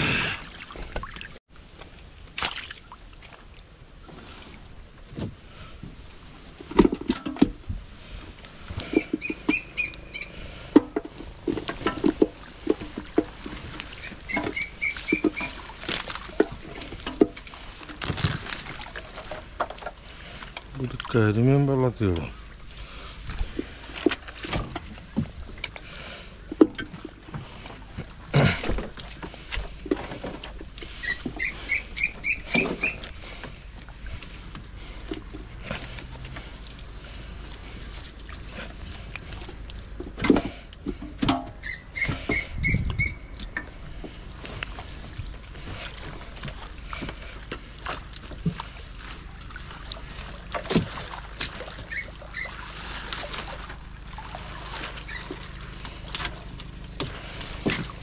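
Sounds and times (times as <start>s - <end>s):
knocks and clatter of handling: 6.6s - 7.7s, 10.7s - 20.7s
high squeaky chirps: 8.9s - 10.4s, 14.0s - 15.6s, 31.0s - 33.0s, 41.6s - 43.4s.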